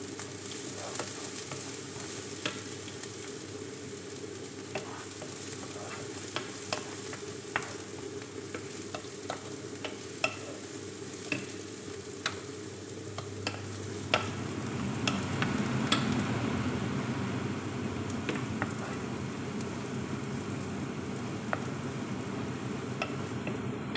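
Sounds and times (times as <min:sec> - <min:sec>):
onion sizzling in oil: 0:00.0 - 0:23.9
wooden spoon scraping a pan: 0:00.5 - 0:02.7, 0:04.7 - 0:10.7.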